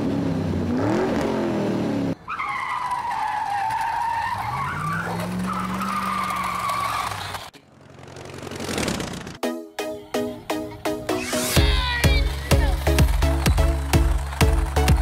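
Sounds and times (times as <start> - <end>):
racing car engine revving: 0.0 - 2.2, 4.8 - 9.4.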